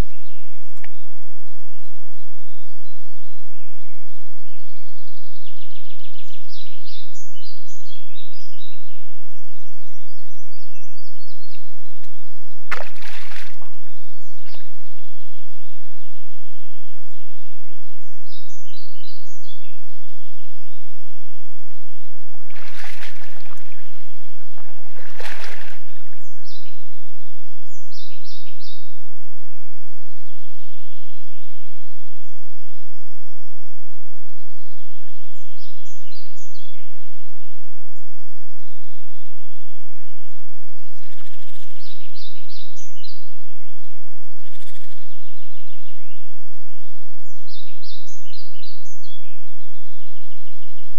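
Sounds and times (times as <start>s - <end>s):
songbirds chirping: 0.0s - 29.0s, 30.2s - 33.8s, 34.6s - 50.9s
splashes in muddy water: 12.7s - 14.9s, 22.3s - 26.6s.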